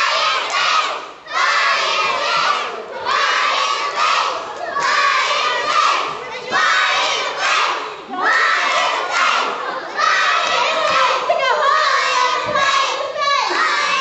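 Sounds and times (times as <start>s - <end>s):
children shouting together: 0.0s - 14.0s.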